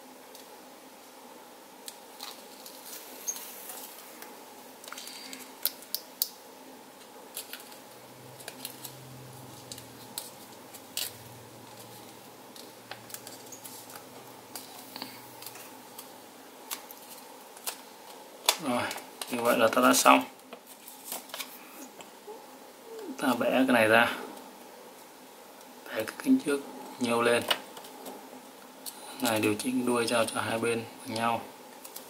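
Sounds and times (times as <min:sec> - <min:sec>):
faint steady hum: 0:00.0 - 0:32.0
paper folding and creasing: 0:07.3 - 0:19.6, 0:20.6 - 0:21.6.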